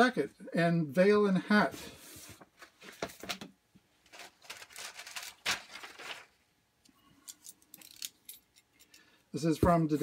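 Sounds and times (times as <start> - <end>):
paper pages rustling: 2.2 - 6.4.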